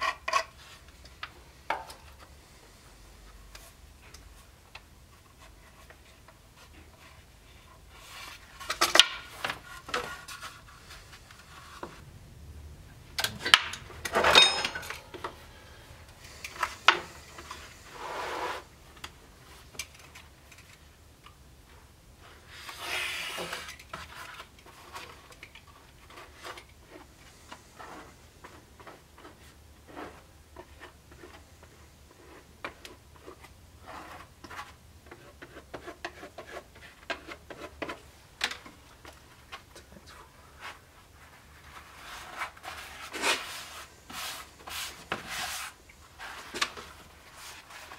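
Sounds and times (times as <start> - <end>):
scraping and rubbing: 5.1 - 12.1, 13.3 - 18.8, 27.7 - 38.1, 40.5 - 47.9
hand tools clattering on workbench: 13.3 - 15.4.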